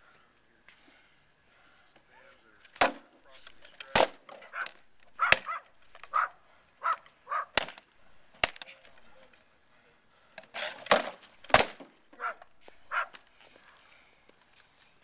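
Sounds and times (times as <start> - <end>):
wooden swords striking armour: 2.8 - 3.1, 5.1 - 6.1, 7.5 - 7.8, 10.6 - 12.0.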